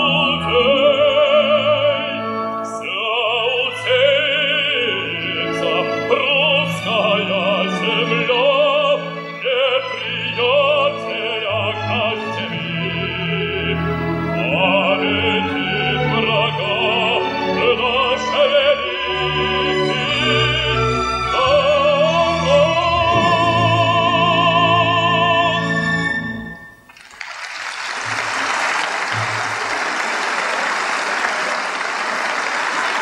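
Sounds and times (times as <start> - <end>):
bass singer with vibrato: 0.0 - 26.1
orchestra playing: 0.0 - 27.0
audience applause: 26.9 - 33.0.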